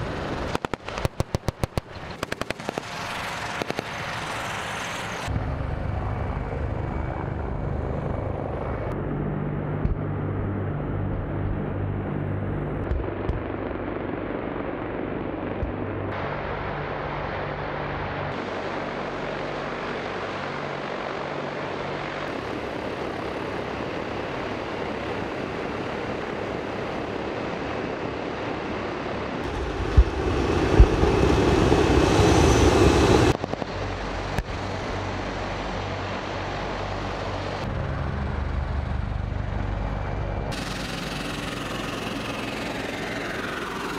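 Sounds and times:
hovercraft turbines roaring: 0.0s - 43.9s
heavy low engine rumble: 29.4s - 43.9s.

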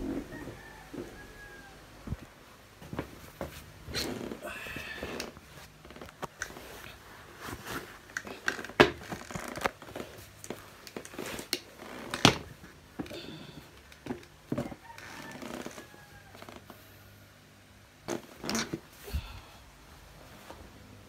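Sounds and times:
shoes and clothing rustling: 0.0s - 16.8s.

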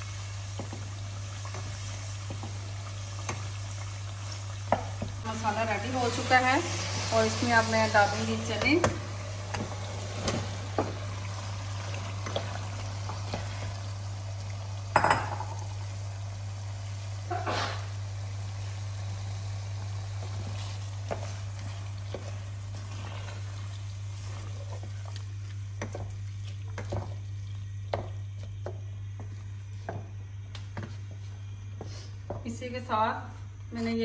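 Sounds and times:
wooden spoon stirring in pot: 0.0s - 14.0s, 20.1s - 32.5s.

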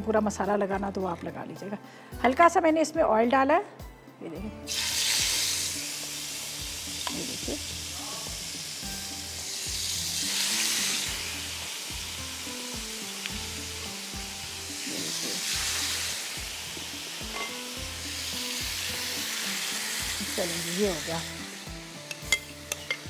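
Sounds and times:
chicken sizzling in hot oil: 4.7s - 23.0s.

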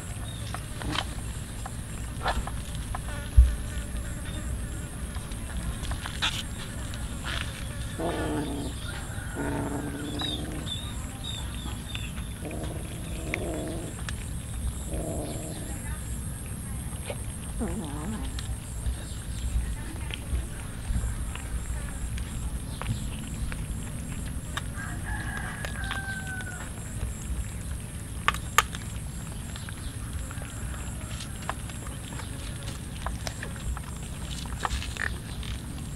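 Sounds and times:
rooster crowing: 8.8s - 10.5s, 24.8s - 26.7s.

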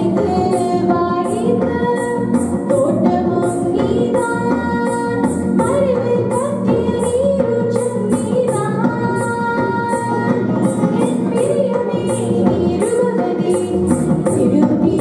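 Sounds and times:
high percussion beat: 0.0s - 15.0s
woman singing into microphone: 0.0s - 15.0s.

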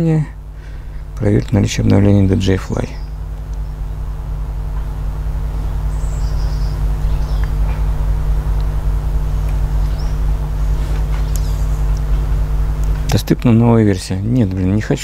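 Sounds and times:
motor humming: 0.0s - 15.0s.

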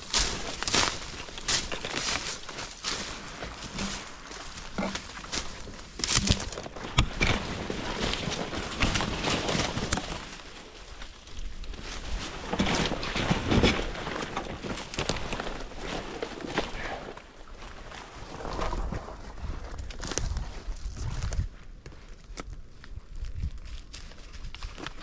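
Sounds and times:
twigs snapping: 0.0s - 16.9s
footsteps through brush: 0.0s - 25.0s.

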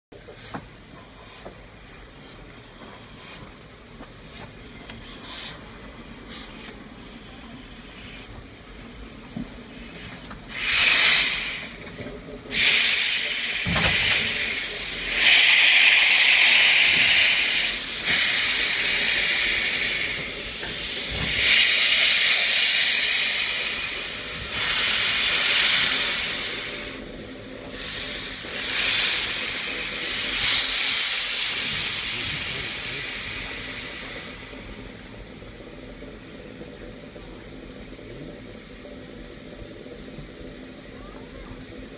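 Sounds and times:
steam locomotive venting steam: 0.2s - 41.9s.

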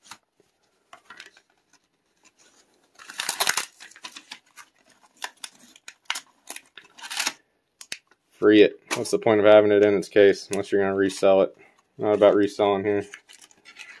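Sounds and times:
plastic packaging crackling: 0.9s - 8.2s, 12.3s - 14.0s
cardboard tearing: 2.9s - 7.4s.

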